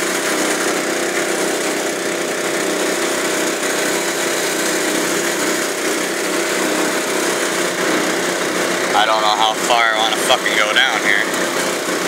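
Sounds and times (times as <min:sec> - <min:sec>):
small engine running: 0:00.0 - 0:12.0.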